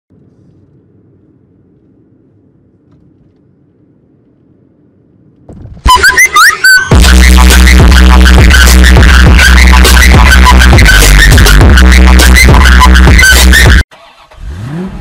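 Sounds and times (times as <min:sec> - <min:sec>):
electronic chirps and whistles: 0:05.9 - 0:07.0.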